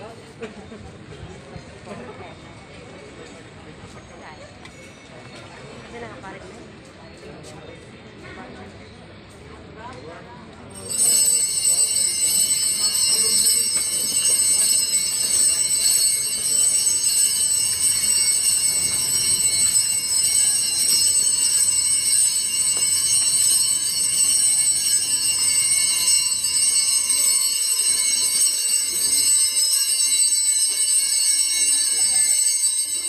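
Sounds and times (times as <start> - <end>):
hand bells ringing: 10.7 - 33.0.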